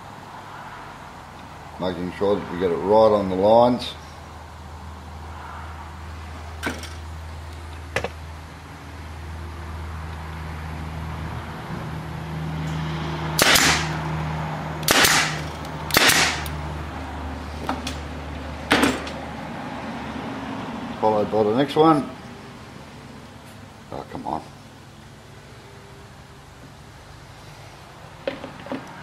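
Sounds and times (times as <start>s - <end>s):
pneumatic stapler firing: 13.4s - 14.0s, 14.8s - 16.6s.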